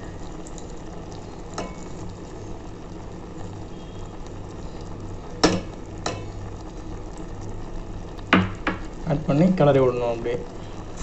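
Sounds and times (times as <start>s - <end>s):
fruit pulp bubbling in pot: 0.0s - 11.0s
sharp knocks: 8.3s - 8.9s.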